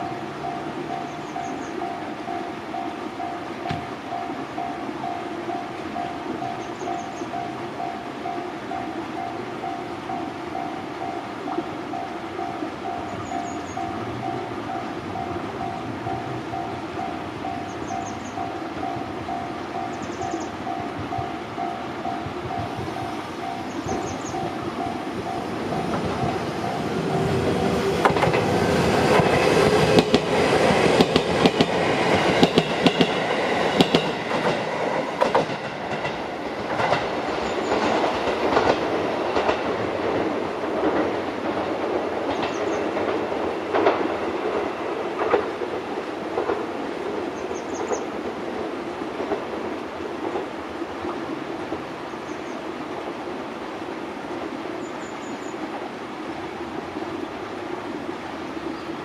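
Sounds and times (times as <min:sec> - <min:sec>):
level crossing warning bell: 0:00.0 - 0:28.0
train wheels clacking over rail joints: 0:10.6 - 0:50.6.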